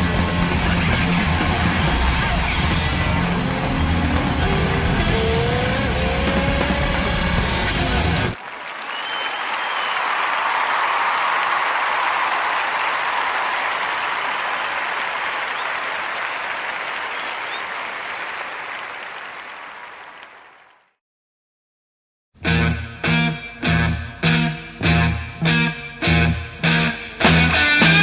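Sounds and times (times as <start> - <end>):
guitar music: 0.0 - 8.4, 22.4 - 28.0
audience applauding: 0.0 - 21.0.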